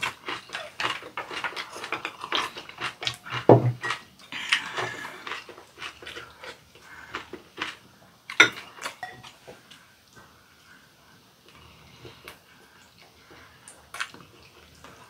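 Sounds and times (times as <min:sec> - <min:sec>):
chewing and lip smacking: 0:12.3 - 0:15.0.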